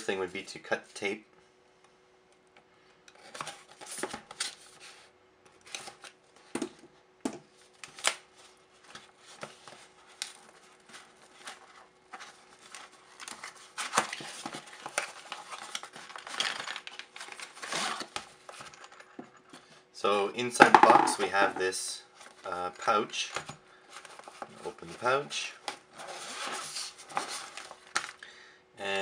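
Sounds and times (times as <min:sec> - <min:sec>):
cardboard scraping and crinkling: 0:08.4 - 0:18.8, 0:23.9 - 0:28.1.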